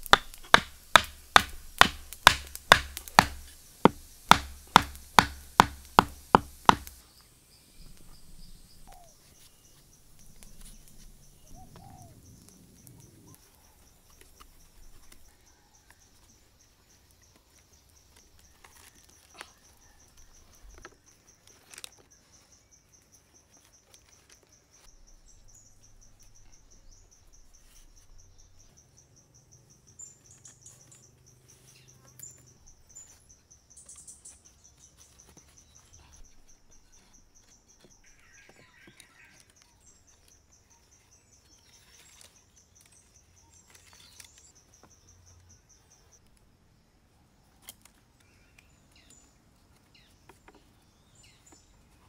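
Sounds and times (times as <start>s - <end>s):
bird chirps: 7.0s - 17.1s, 17.8s - 46.2s.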